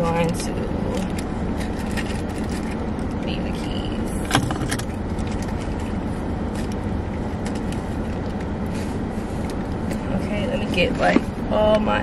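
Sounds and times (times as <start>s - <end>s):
car engine low rumble: 0.0s - 12.0s
purse and wallet clicks and rustles: 0.9s - 3.2s, 4.3s - 8.5s.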